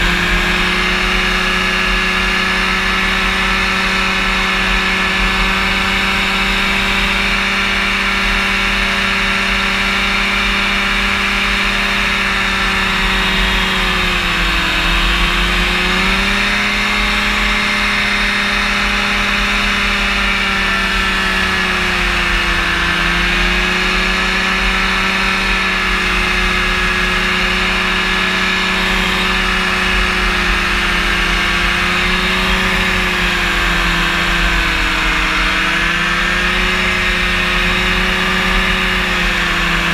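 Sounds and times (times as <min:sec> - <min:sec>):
aircraft engine and propeller: 0:00.0 - 0:39.9.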